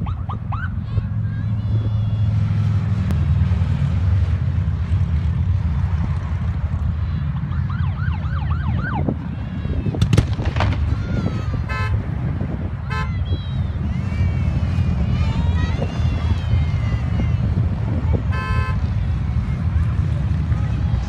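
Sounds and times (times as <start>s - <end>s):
motorcycle engines rumbling: 0.0s - 21.0s
onlookers calling out: 12.8s - 21.0s.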